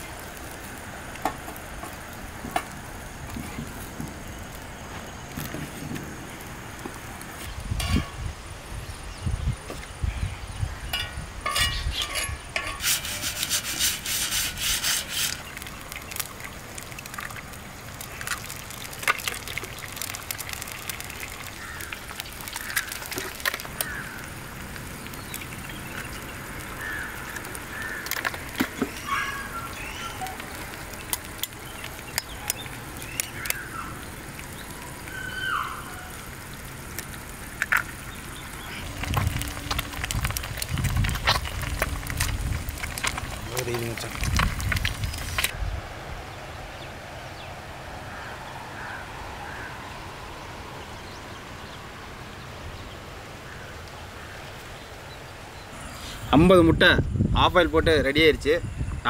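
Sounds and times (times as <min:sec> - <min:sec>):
eggs sizzling on a griddle: 0:00.0 - 0:45.6.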